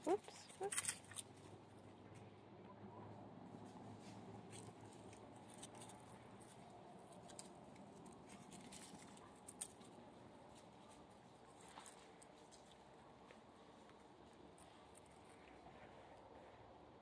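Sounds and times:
small clicks and rustles: 0.0s - 2.3s, 3.6s - 16.6s.

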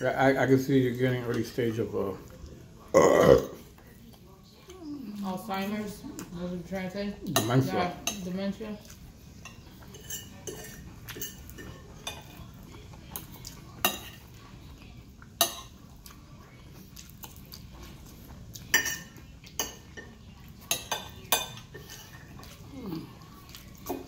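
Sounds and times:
knife and fork scraping a plate: 9.4s - 12.4s, 20.7s - 22.6s.

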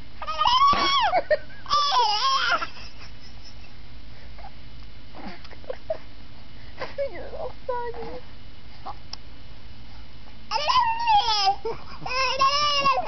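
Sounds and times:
baby squealing: 0.2s - 2.7s, 10.5s - 13.0s.

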